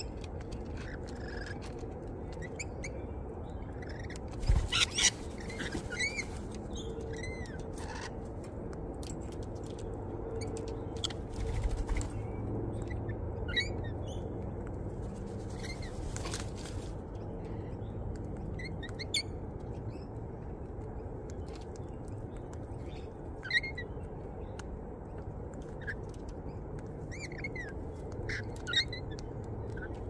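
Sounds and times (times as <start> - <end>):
low background rumble: 0.0 - 30.0
parrots chirping and squawking: 0.1 - 3.0, 3.6 - 8.6, 10.4 - 14.2, 15.2 - 17.8, 23.4 - 24.0, 27.1 - 30.0.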